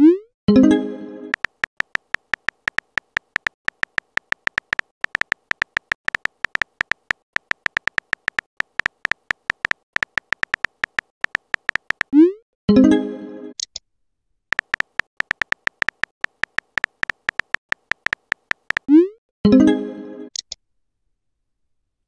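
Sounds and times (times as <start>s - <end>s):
keyboard tapping clicks: 1.4s - 12.1s, 14.6s - 18.9s.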